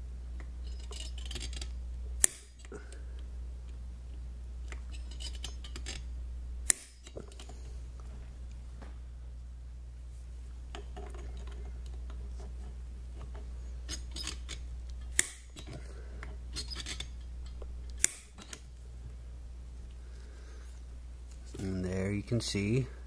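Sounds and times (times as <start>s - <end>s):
low hum: 0.0s - 23.0s
center punch snapping: 2.2s - 2.6s, 6.6s - 7.2s, 14.9s - 15.7s, 17.5s - 18.5s.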